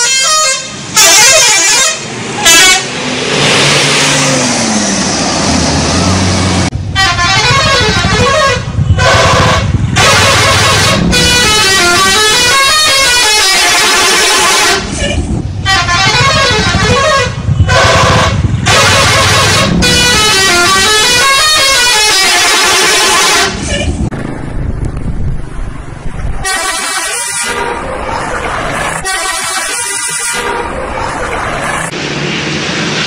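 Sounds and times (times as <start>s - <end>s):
air horn melody: 0.0s - 3.0s, 7.0s - 23.9s, 26.4s - 27.8s, 29.0s - 30.7s.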